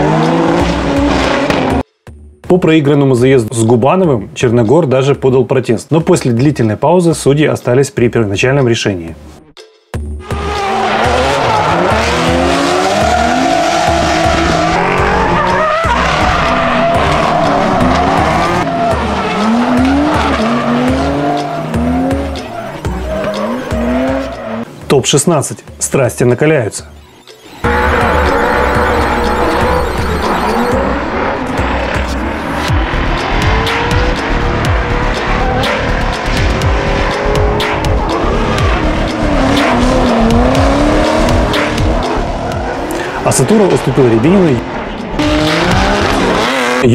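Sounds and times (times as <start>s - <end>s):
car engines revving: 0.0s - 1.8s, 10.2s - 24.8s, 27.0s - 46.9s
tyres screeching: 10.2s - 24.7s
music with thumping beat: 31.6s - 42.8s, 45.0s - 46.5s.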